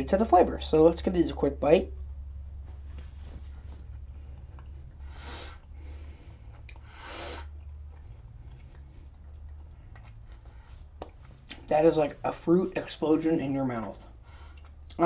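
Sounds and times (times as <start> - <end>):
sharp breaths through nose: 5.0 - 9.1, 14.1 - 14.6.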